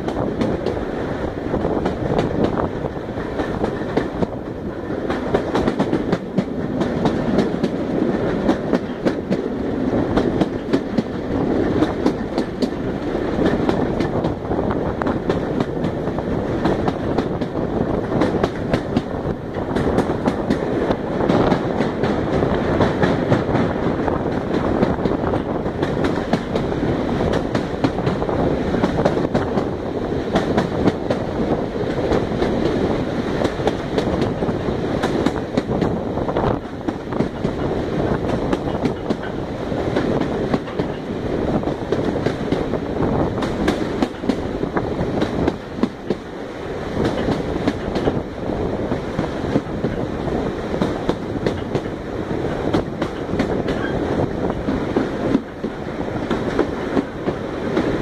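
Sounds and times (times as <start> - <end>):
train rushing rumble: 0.0 - 58.0
wheels clacking over rails: 1.8 - 14.4, 15.0 - 46.3, 47.0 - 48.3, 50.8 - 58.0.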